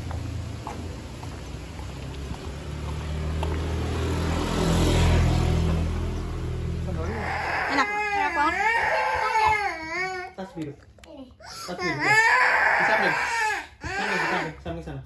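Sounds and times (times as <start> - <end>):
vehicle engine passing by: 0.0 - 9.3.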